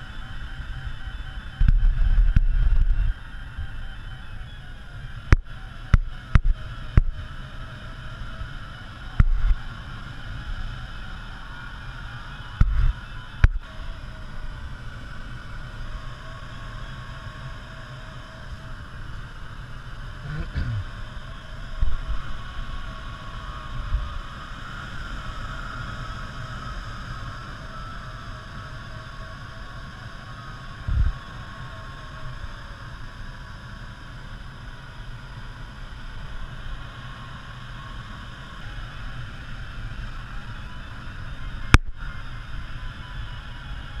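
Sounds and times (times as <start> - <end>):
rushing airflow in glider cockpit: 0.0 - 44.0
low buffeting rumbles: 17.6 - 24.5.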